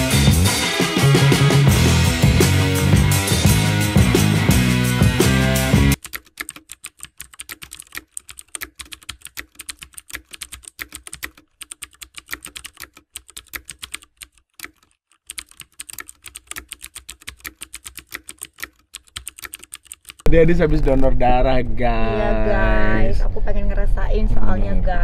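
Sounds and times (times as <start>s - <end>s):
keyboard typing: 6.0s - 20.3s.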